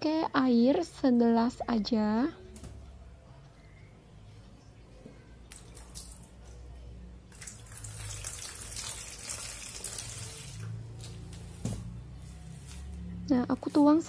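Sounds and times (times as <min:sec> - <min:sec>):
water pouring into metal pot: 0:07.3 - 0:10.7.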